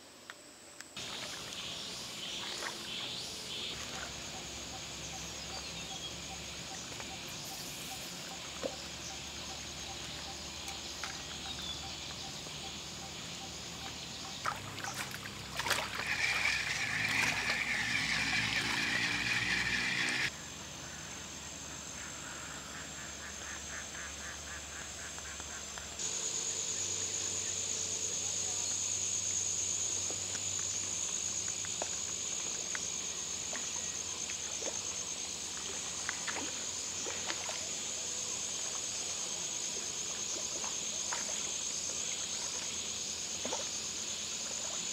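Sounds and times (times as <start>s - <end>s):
high insect drone: 0.0s - 44.9s.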